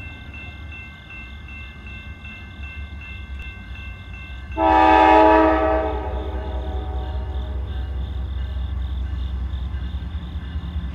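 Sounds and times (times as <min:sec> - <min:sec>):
crossing bell dinging: 0:00.0 - 0:10.9
locomotive air horn chord: 0:04.6 - 0:07.9.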